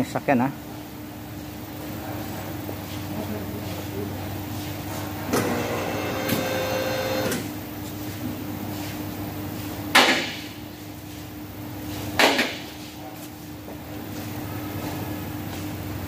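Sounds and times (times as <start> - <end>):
electric pump motor whining: 5.2 - 7.5.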